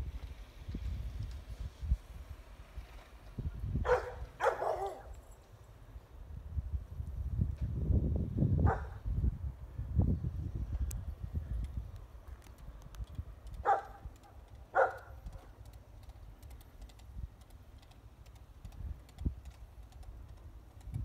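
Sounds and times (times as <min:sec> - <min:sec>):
dog barking: 0:03.8 - 0:05.1, 0:08.6 - 0:09.0, 0:13.6 - 0:14.0, 0:14.7 - 0:15.5.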